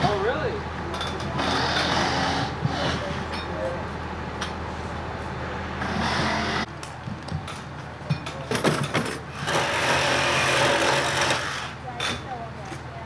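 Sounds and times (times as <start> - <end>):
sharp knocks and clatter: 7.0 - 11.4
power tool running: 9.3 - 11.8.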